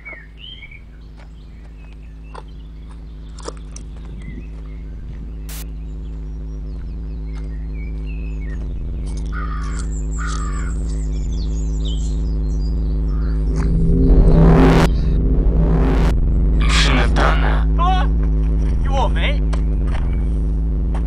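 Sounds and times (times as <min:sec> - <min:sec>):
birds chirping: 0:00.0 - 0:20.6
low steady drone: 0:00.0 - 0:21.0
crow cawing: 0:09.3 - 0:10.8, 0:13.1 - 0:13.4.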